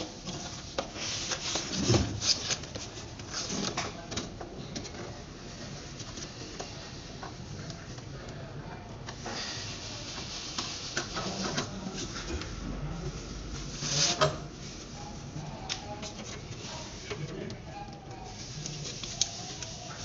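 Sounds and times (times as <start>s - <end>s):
scrape under wash basin: 9.2s - 12.3s
small clicks and rubbing: 15.7s - 20.0s.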